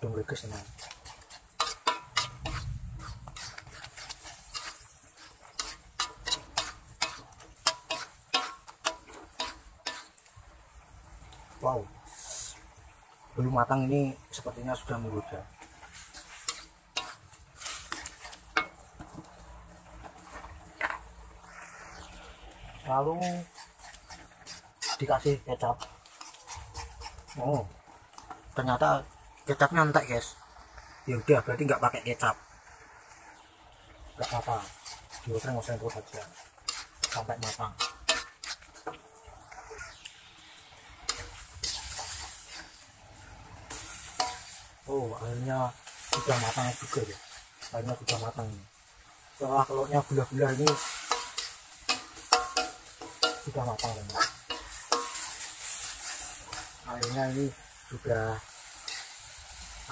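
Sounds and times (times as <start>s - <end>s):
sizzling hiss: 0.0s - 59.9s
metal spatula scraping a wok: 0.2s - 10.3s, 15.6s - 19.2s, 20.0s - 27.6s, 34.0s - 59.9s.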